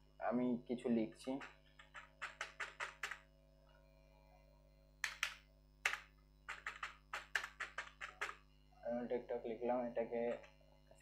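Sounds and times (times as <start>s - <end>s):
typing on keyboard: 1.3s - 3.3s, 5.0s - 8.4s.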